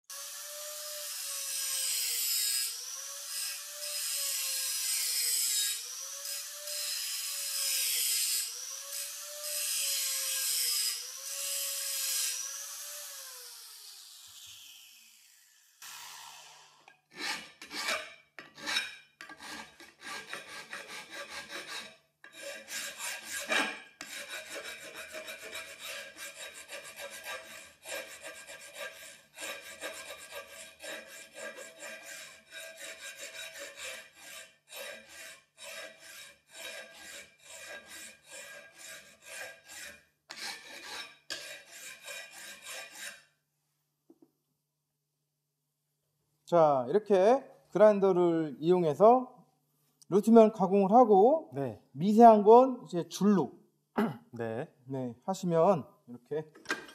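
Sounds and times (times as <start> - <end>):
hand file rasping on metal: 0.2 - 13.1, 17.1 - 43.4.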